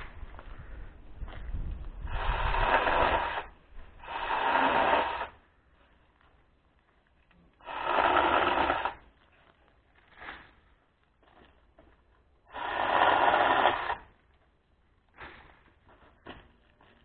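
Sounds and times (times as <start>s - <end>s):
handheld power tool running: 7.6s - 9.0s, 12.5s - 14.1s.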